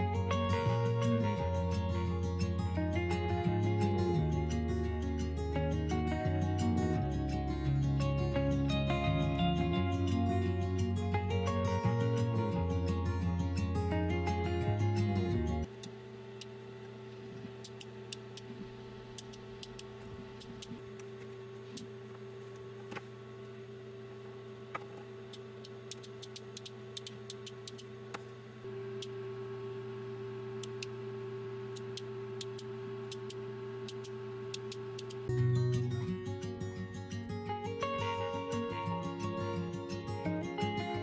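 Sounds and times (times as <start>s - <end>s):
electrical hum: 0.0s - 41.0s
sharp clicks: 17.6s - 20.8s, 25.3s - 27.9s, 31.7s - 35.3s.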